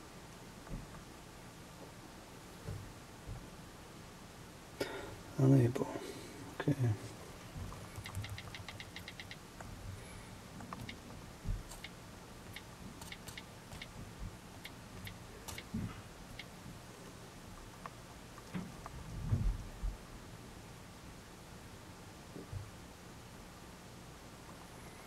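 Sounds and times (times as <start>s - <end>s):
faint room tone hiss: 0.0s - 25.0s
on-screen keyboard ticks: 7.7s - 9.4s, 10.6s - 11.0s, 11.6s - 13.9s, 14.6s - 15.7s, 16.3s - 16.5s.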